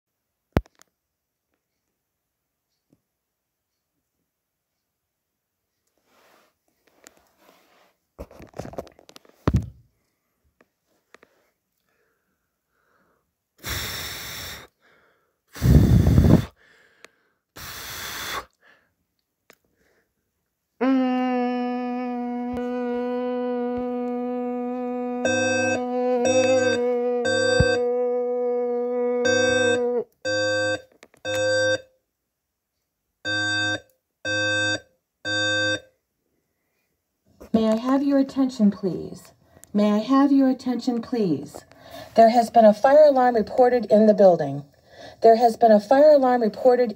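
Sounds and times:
breathy exhalations: 11.2s - 19.0s, 41.6s - 42.2s
fire alarm electronic beeps: 25.3s - 27.8s, 29.2s - 31.9s, 33.2s - 35.9s.

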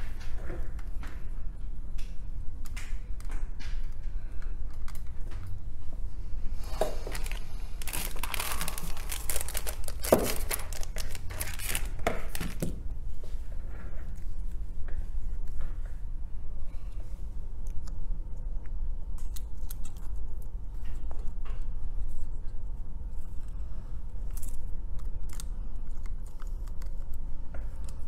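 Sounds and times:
steady low hum: 0.0s - 28.0s
rustling: 6.4s - 15.6s.

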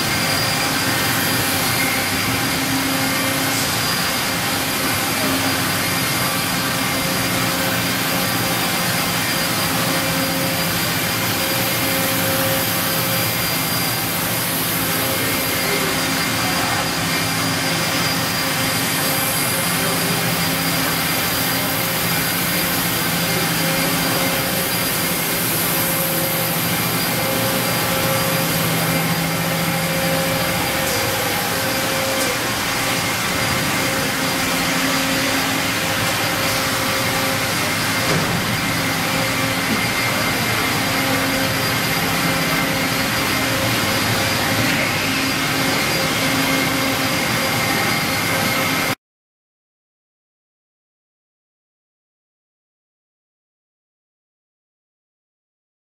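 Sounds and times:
industrial machinery whirring: 0.0s - 49.0s.

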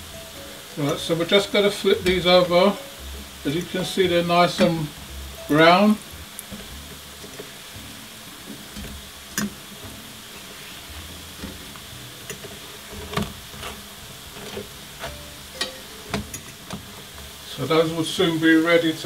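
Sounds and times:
flatbreads sizzling in a pan: 0.0s - 19.0s.

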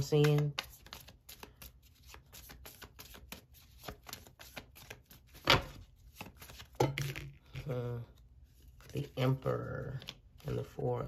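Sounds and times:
cards being shuffled: 0.0s - 10.8s.

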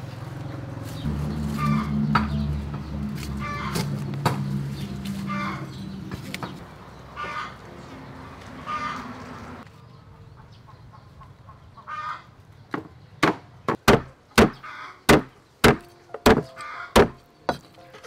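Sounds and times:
cleaver chopping on wooden block: 12.8s - 17.6s.

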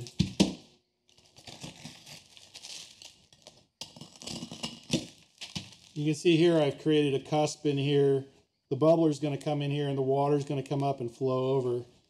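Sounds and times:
pumice crumbling and grating: 0.0s - 6.1s.

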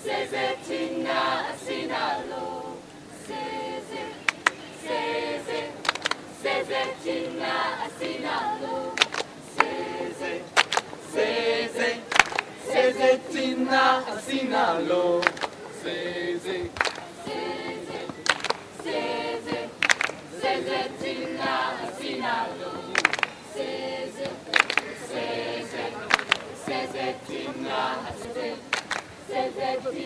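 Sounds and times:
group of voices singing: 0.0s - 30.0s
sharp handclaps: 4.2s - 4.6s, 5.8s - 6.2s, 9.0s - 9.8s, 10.6s - 11.0s, 12.1s - 12.6s, 15.2s - 15.6s, 16.7s - 20.3s, 22.9s - 23.4s, 24.2s - 25.0s, 26.0s - 26.9s, 28.2s - 29.2s.

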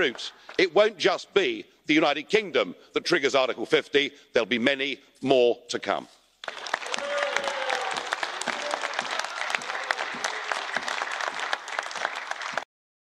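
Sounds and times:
dense steady clapping: 6.4s - 12.6s.

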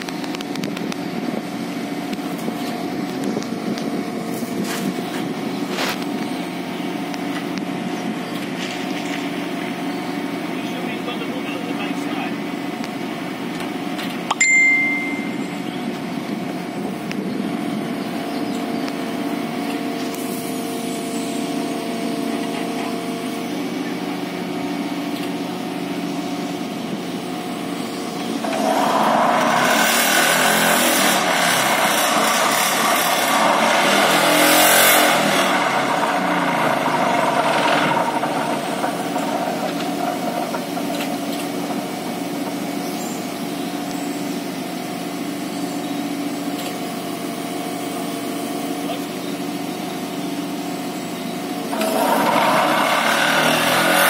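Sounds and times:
diesel engine running: 0.0s - 54.0s
high beep: 14.3s - 15.8s
vibratory pile driver rattling buzz: 28.2s - 42.3s, 51.7s - 54.0s.

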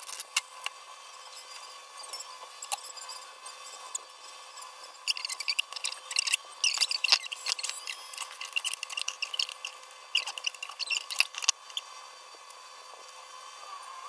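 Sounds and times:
wire-mesh strainer scraping bowl: 5.0s - 11.5s.

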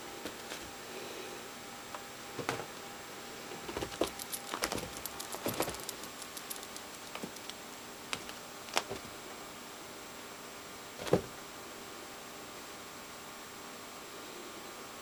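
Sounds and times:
light jingling clicks: 3.8s - 8.9s.

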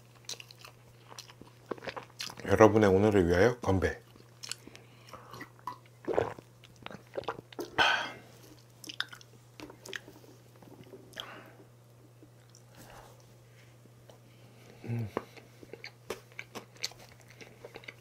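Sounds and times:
chewing and swallowing: 0.1s - 2.4s, 4.1s - 7.8s, 8.5s - 11.4s, 12.2s - 13.3s, 14.0s - 18.0s.

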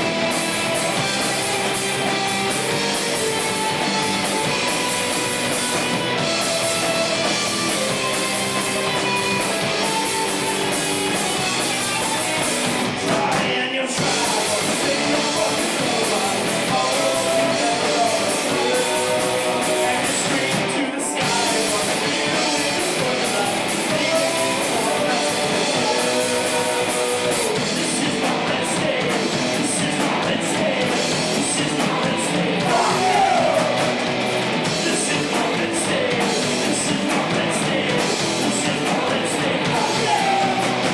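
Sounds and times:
live rock band playing: 0.0s - 40.9s
person singing: 13.0s - 40.9s.

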